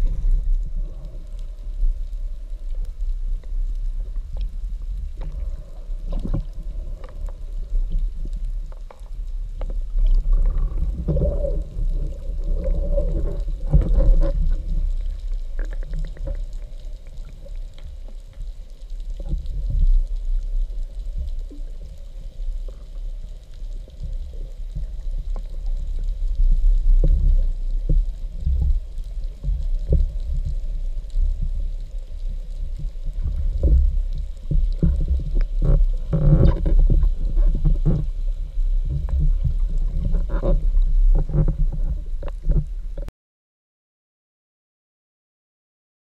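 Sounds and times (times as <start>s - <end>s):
faint clicks and crackles: 0.0s - 43.1s
underwater water wash: 0.0s - 43.1s.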